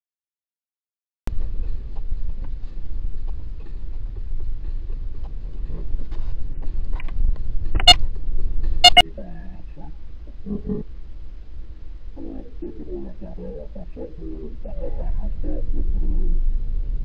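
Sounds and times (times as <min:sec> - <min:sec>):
car road and engine rumble: 0:01.3 - 0:17.0
car horn honking: 0:07.8 - 0:08.0, 0:08.8 - 0:09.0.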